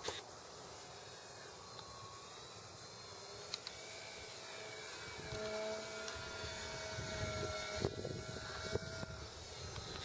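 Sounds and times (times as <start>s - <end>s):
model airplane motor humming: 0.0s - 10.0s.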